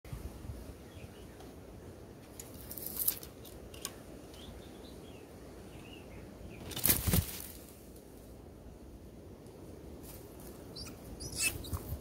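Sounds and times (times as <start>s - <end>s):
small birds chirping: 0.4s - 7.9s, 10.4s - 12.0s
bird wing flaps and rustling: 6.6s - 7.8s.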